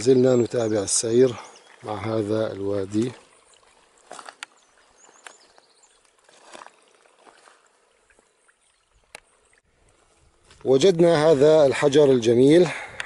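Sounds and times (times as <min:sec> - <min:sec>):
faint water trickle: 0:00.0 - 0:12.8
footsteps on loose stones: 0:03.9 - 0:07.6.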